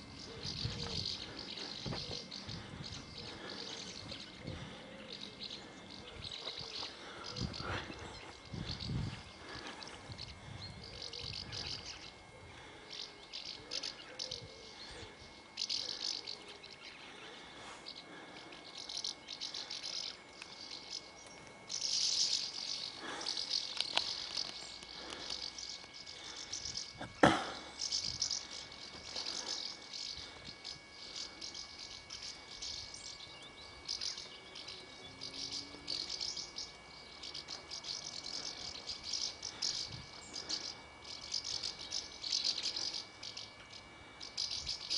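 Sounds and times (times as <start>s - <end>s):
house martins twittering: 0.0s - 44.9s.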